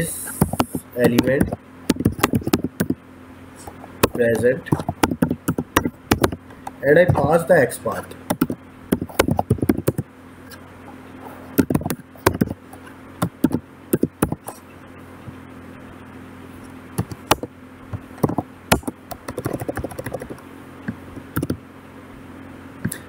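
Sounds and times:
steady low hum: 0.0s - 23.0s
typing on keyboard: 0.5s - 3.0s, 4.0s - 6.4s, 8.3s - 10.0s, 11.6s - 12.6s, 13.2s - 14.6s, 17.0s - 17.5s, 18.2s - 20.4s, 21.3s - 21.6s.

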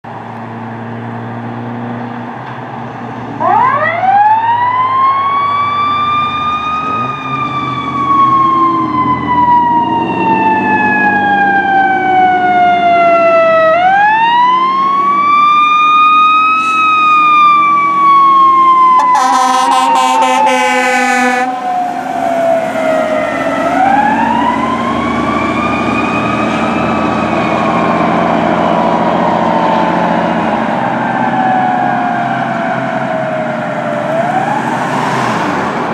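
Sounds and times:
truck engine: 0.0s - 35.9s
electronic siren wailing: 3.4s - 35.3s
air horn blast: 19.0s - 21.7s.

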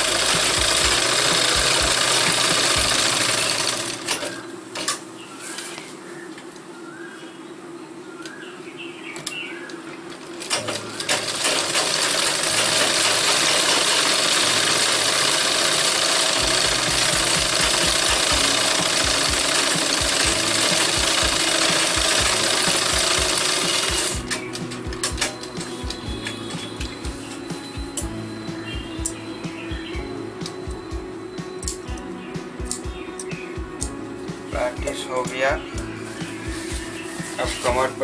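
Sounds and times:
sewing machine rattling: 0.0s - 4.4s, 10.4s - 24.4s.

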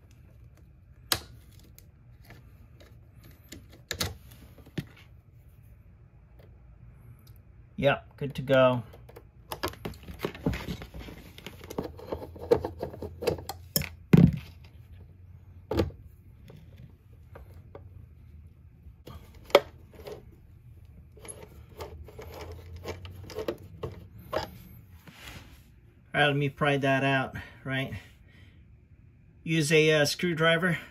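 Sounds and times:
hand tools and wiring clicking: 8.1s - 15.0s, 19.1s - 24.6s.

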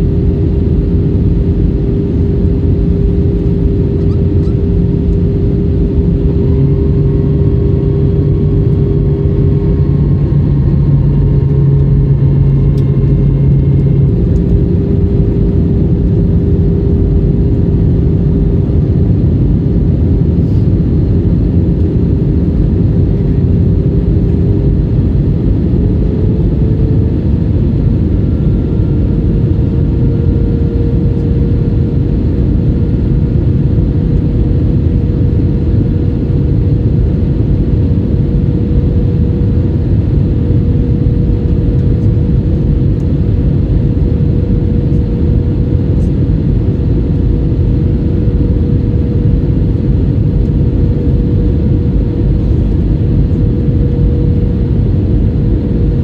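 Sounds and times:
faint engine tone: 0.0s - 55.8s
airliner cabin engine rumble: 0.0s - 56.0s.

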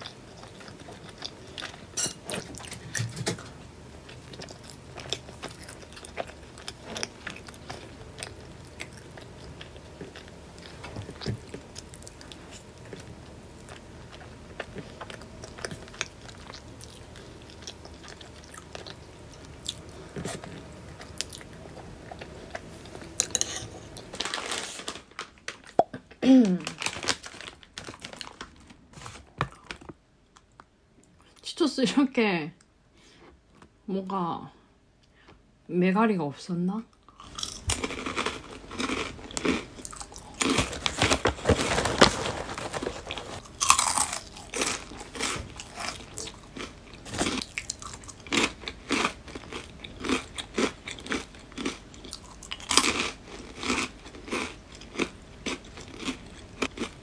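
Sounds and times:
crunchy pastry chewing: 0.0s - 24.7s, 37.1s - 57.0s
rustling: 40.4s - 44.2s.

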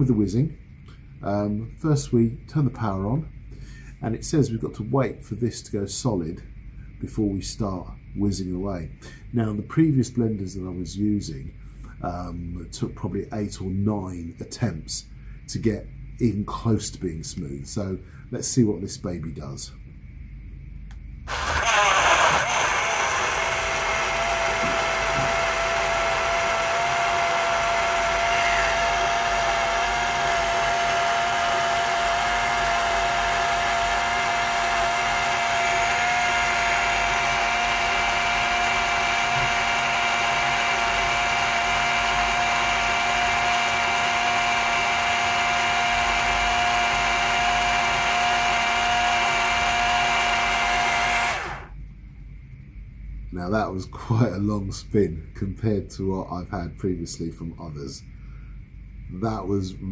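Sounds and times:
blender motor whining: 21.3s - 51.8s.

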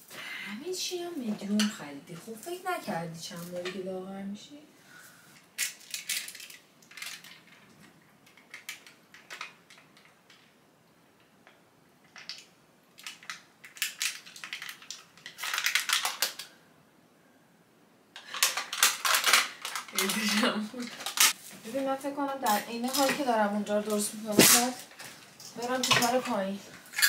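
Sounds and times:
hangers clicking and rattling: 5.6s - 10.4s, 18.2s - 21.4s, 22.4s - 27.0s.

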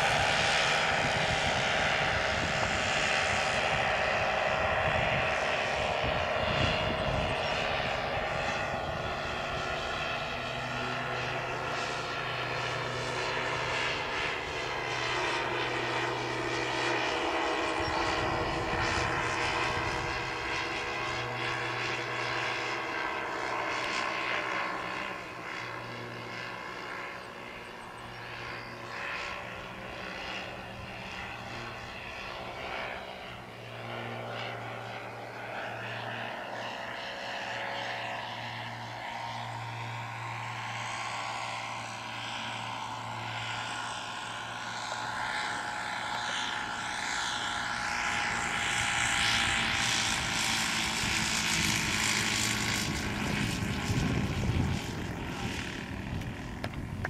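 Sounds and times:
model plane engines and propellers: 0.0s - 57.0s.

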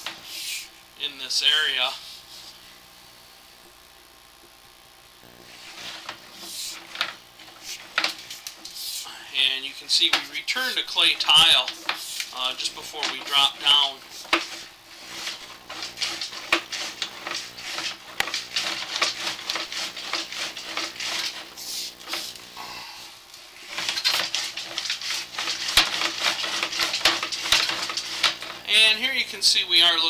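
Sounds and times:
steady hum: 0.0s - 30.0s
cable reel clicking and rattling: 5.6s - 8.8s, 9.4s - 22.6s, 23.4s - 30.0s.

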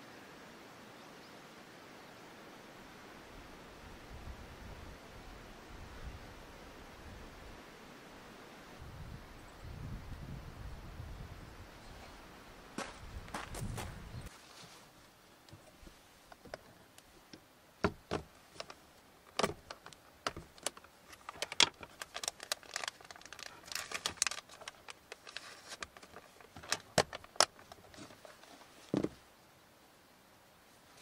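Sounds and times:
plastic rustling: 18.5s - 29.2s.

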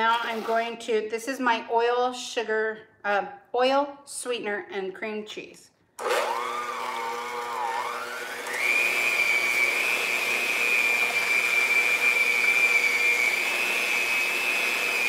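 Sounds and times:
electric hand mixer whining: 6.0s - 15.0s.

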